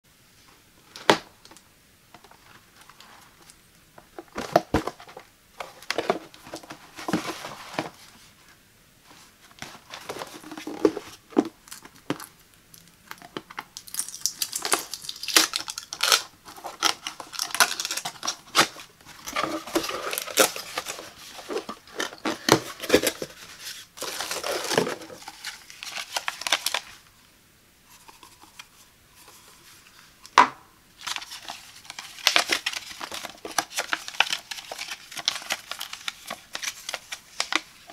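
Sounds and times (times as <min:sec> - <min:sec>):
cardboard and paper rustling: 0:02.3 - 0:08.4, 0:09.1 - 0:12.3, 0:14.6 - 0:27.0, 0:31.0 - 0:37.9
cardboard box being opened: 0:04.3 - 0:08.1, 0:16.0 - 0:26.8.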